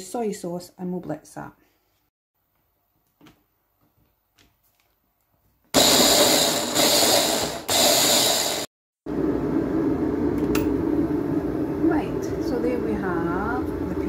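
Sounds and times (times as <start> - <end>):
electric mini chopper motor: 5.8 - 8.7
electric kettle rumbling hiss: 7.9 - 14.0.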